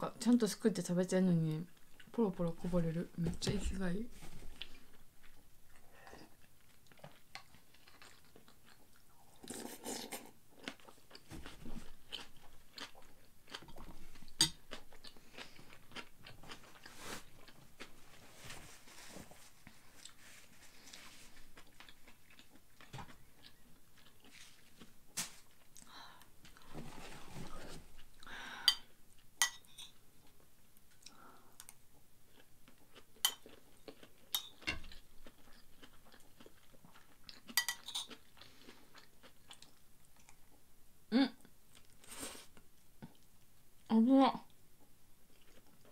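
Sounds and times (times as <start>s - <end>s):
person chewing: 4.6s - 18.1s, 19.8s - 20.2s, 20.8s - 25.9s, 28.0s - 40.7s, 41.4s - 43.6s, 44.5s - 45.9s.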